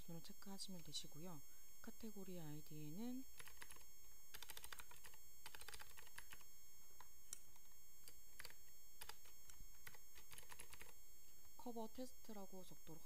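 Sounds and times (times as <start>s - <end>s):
typing on computer keyboard: 3.4s - 6.4s, 8.4s - 11.0s.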